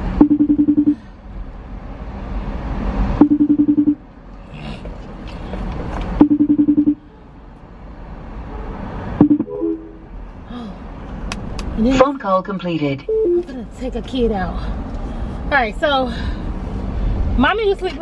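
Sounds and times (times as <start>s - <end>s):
car road noise: 0.0s - 18.0s
phone ring tones: 3.2s - 4.0s, 6.2s - 7.0s.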